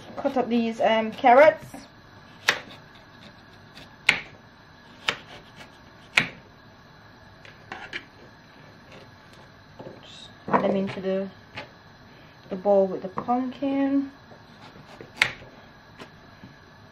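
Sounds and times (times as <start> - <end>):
knife chopping on cutting board: 2.4 - 4.3, 5.0 - 6.4, 14.6 - 15.4.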